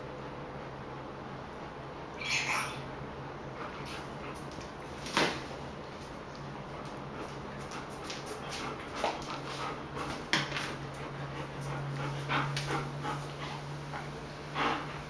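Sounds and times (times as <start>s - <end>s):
steady low hum: 0.0s - 15.0s
dog panting: 3.4s - 5.0s, 6.4s - 15.0s.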